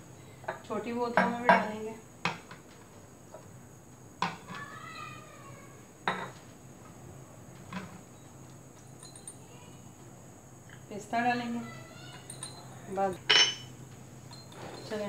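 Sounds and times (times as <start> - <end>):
glass bottles clinking: 6.1 - 6.4, 7.7 - 9.4, 12.0 - 15.0.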